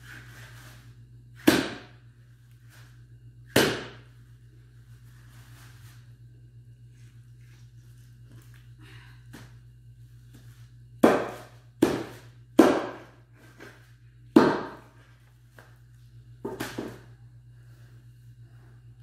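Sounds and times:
cleaver chopping onto wooden board: 1.4 - 1.9, 3.5 - 4.0, 11.0 - 13.0, 14.4 - 14.8.

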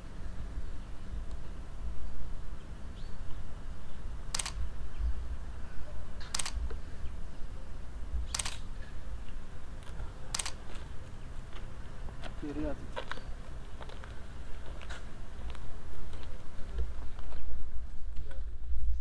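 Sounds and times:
camera shutter double click: 4.3 - 4.6, 6.2 - 6.6, 8.3 - 8.7, 10.3 - 10.6.

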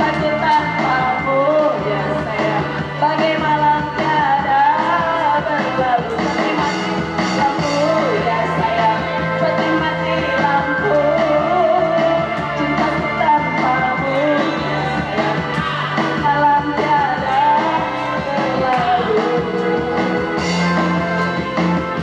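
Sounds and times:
person singing: 0.0 - 22.0
drum beat: 13.6 - 22.0.

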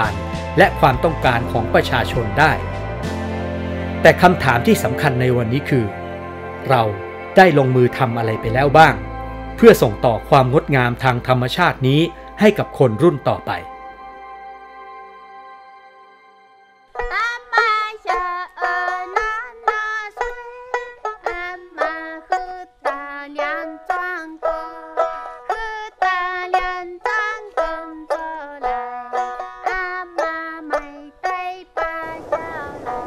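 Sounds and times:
plucked string instrument: 0.0 - 33.0
person singing a lullaby: 17.0 - 33.0.

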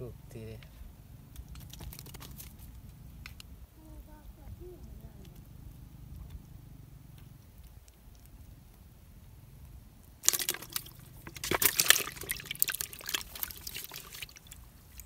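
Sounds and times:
fish splashing in a bucket: 1.5 - 2.6, 10.2 - 15.0.

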